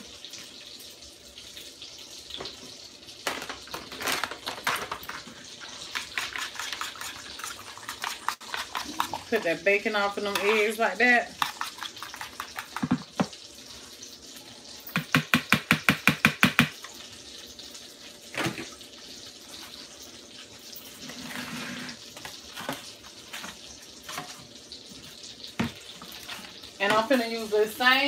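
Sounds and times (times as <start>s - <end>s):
fork beating eggs in bowl: 5.6s - 9.6s, 10.2s - 13.2s.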